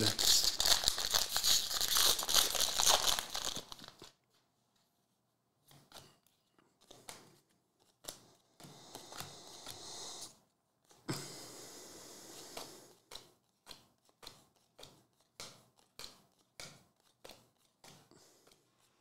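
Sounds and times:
foil wrapper tearing and crinkling: 0:00.0 - 0:04.2
cards handled with soft clicks: 0:05.6 - 0:11.1, 0:12.3 - 0:18.9.

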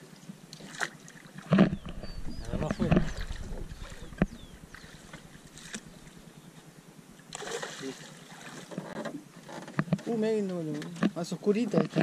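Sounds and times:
faint bird chirps: 0:01.7 - 0:06.6
fish splashing at surface: 0:07.3 - 0:08.7.

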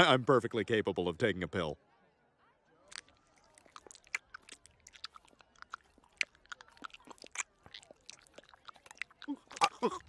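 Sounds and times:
wet mouth clicks and smacks: 0:02.9 - 0:10.0.

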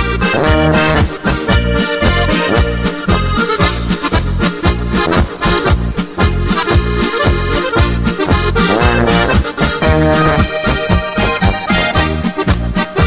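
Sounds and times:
accordion folk music: 0:00.0 - 0:13.0.

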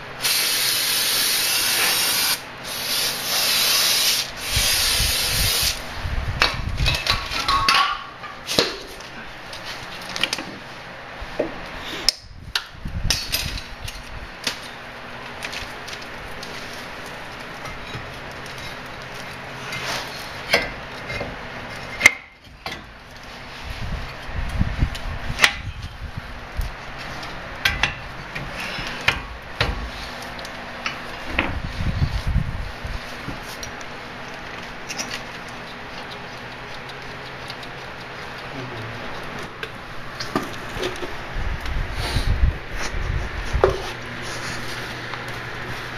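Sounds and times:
steady hiss: 0:00.2 - 0:05.9.

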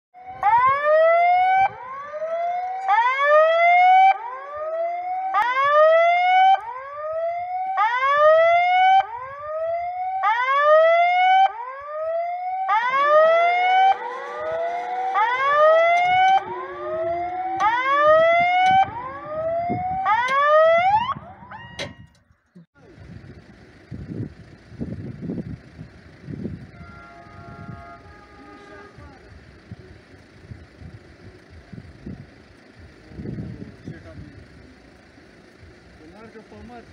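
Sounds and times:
level-crossing warning tone sweeping up: 0:11.4 - 0:21.4.

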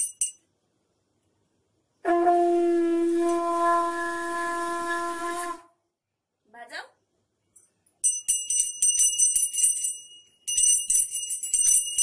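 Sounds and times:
conch shell blown long note: 0:02.0 - 0:05.8.

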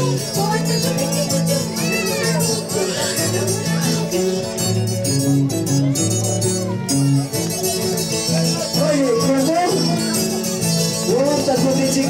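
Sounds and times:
folk music on guitars: 0:00.0 - 0:12.0.

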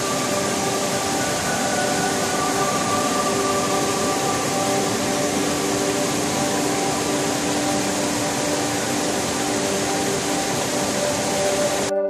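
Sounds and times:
waterfall rushing over rocks: 0:00.0 - 0:12.0.

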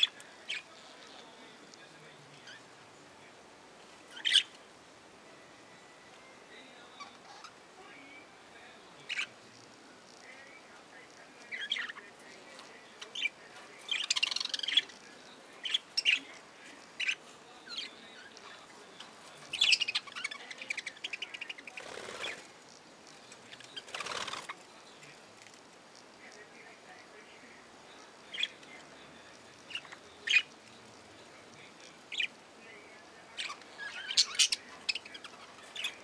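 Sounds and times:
budgerigars chirping: 0:04.1 - 0:04.5, 0:09.1 - 0:09.3, 0:13.0 - 0:14.9, 0:19.5 - 0:22.4, 0:28.0 - 0:28.6, 0:29.5 - 0:30.5, 0:33.4 - 0:36.0
wings flapping: 0:21.8 - 0:22.5, 0:23.8 - 0:24.6.

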